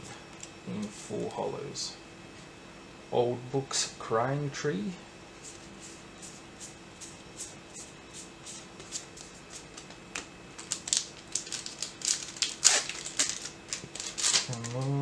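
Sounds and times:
foil wrapper crackling: 8.8s - 15.0s.

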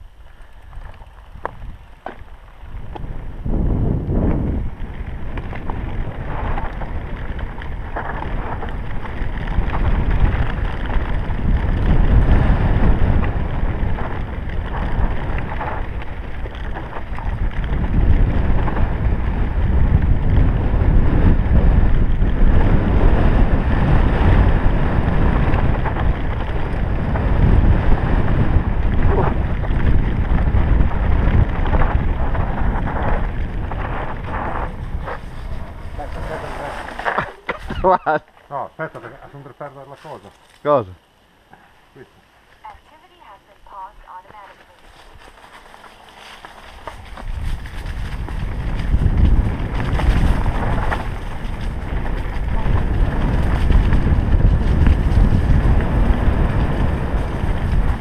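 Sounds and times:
wind rushing over microphone: 0.0s - 38.2s, 42.6s - 58.0s
bike knocking and rattling: 0.0s - 38.5s, 44.8s - 58.0s
bike tyres on dirt: 0.0s - 58.0s.

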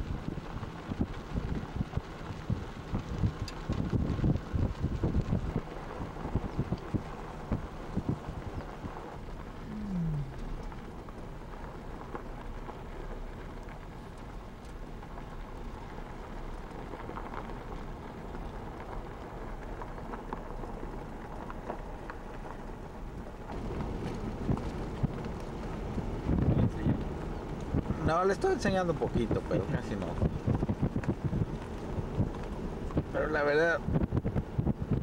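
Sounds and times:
wind buffeting microphone: 0.0s - 14.4s, 15.0s - 35.0s
short low falling tone: 9.6s - 10.7s.

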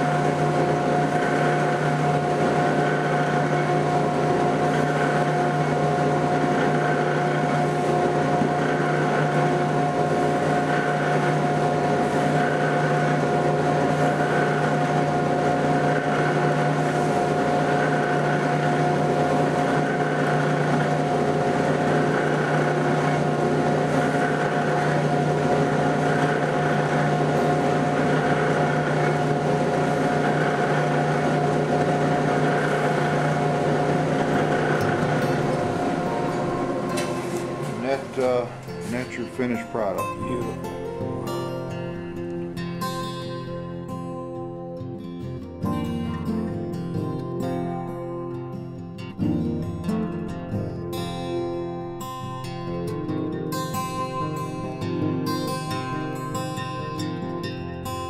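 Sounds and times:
buffing wheel motor whir: 0.0s - 42.6s.

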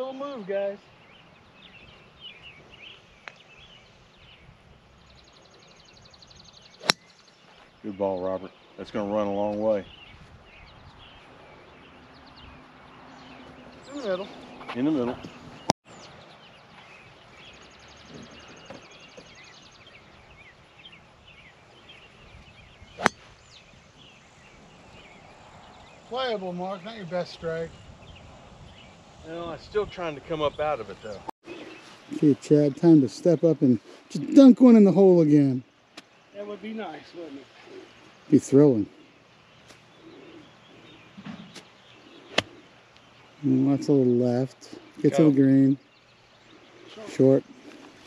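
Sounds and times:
birds chirping faintly: 0.0s - 48.0s
golf club striking ball: 6.8s - 7.2s, 22.9s - 23.5s, 42.3s - 42.6s.

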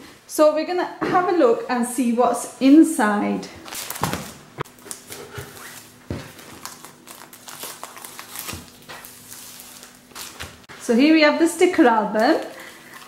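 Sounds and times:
plastic wrapping crinkling: 3.6s - 10.7s, 12.0s - 13.0s
scissors cutting plastic: 3.8s - 10.6s.

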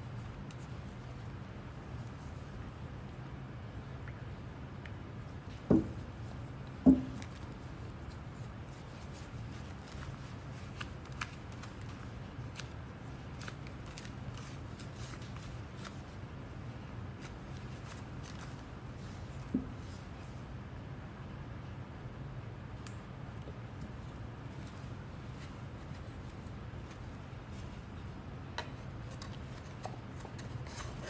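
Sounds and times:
dull knocks: 5.7s - 6.0s, 6.9s - 7.2s.

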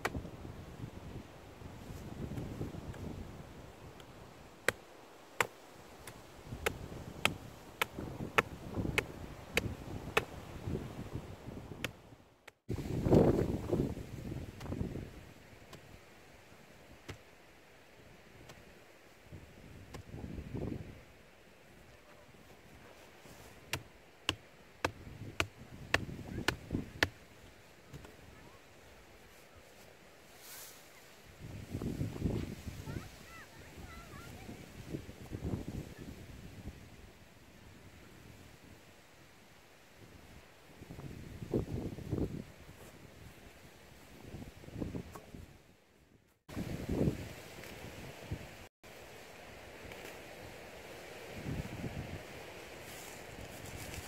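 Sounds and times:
wind on microphone: 0.0s - 4.4s, 6.4s - 12.1s, 12.7s - 15.5s, 19.3s - 21.1s, 24.8s - 27.2s, 31.2s - 38.9s, 40.0s - 45.7s, 46.5s - 48.7s, 50.4s - 54.0s
grass rustling: 0.1s - 35.3s, 46.5s - 54.0s.

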